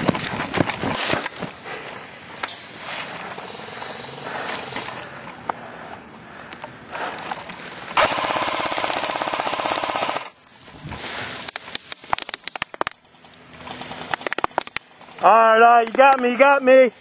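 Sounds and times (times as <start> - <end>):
rustling of movement: 0.0 - 17.0
airsoft machine gun full-auto rattle: 3.2 - 5.0, 8.0 - 10.4, 12.1 - 15.1.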